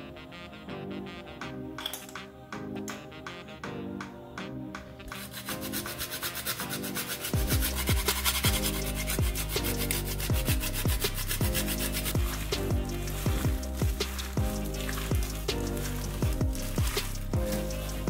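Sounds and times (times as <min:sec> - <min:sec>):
nutmeg grating on rasp: 0:05.1 - 0:18.0
music with beat and bass: 0:07.2 - 0:18.0.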